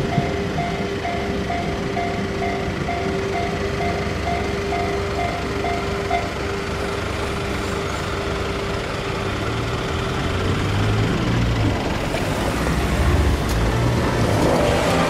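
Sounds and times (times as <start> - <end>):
level crossing warning bell: 0.0 - 8.9
cars driving over crossing: 0.0 - 15.0.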